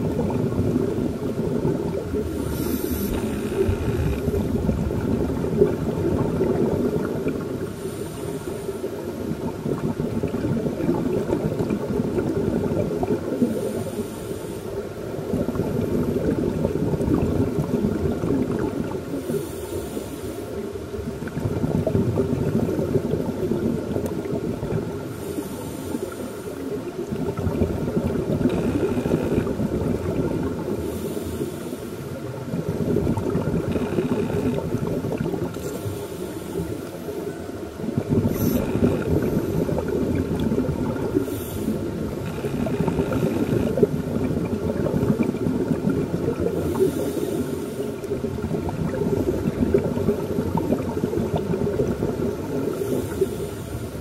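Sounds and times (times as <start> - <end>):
underwater bubbles bursting: 0.0 - 7.8, 8.9 - 13.9, 15.0 - 19.5, 20.8 - 25.2, 26.6 - 31.0, 32.2 - 54.0
scuba regulator breathing: 2.2 - 4.6, 7.7 - 9.1, 13.4 - 15.0, 19.1 - 20.7, 25.1 - 26.8, 30.7 - 32.2, 35.5 - 40.1, 41.0 - 44.1, 46.4 - 48.2, 52.5 - 54.0.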